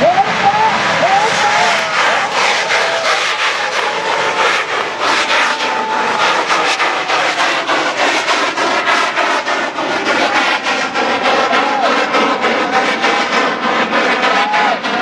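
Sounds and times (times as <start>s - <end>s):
firework hissing rush: 0.1s - 15.0s.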